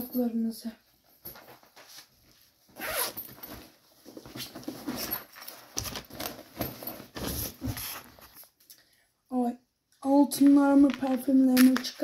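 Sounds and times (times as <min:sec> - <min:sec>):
rustling and scraping in a bag: 0:01.2 - 0:08.5
zipper: 0:02.7 - 0:03.6.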